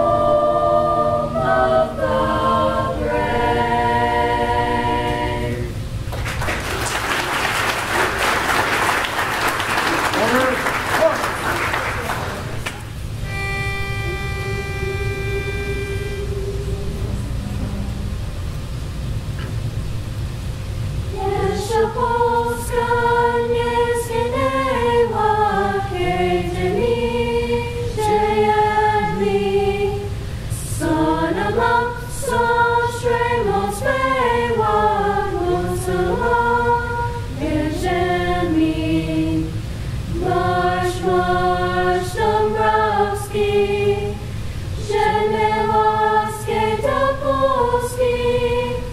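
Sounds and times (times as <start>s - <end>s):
choir singing in harmony: 0.0s - 6.0s, 13.2s - 17.4s, 21.1s - 48.9s
steady pitch note: 13.0s - 19.0s.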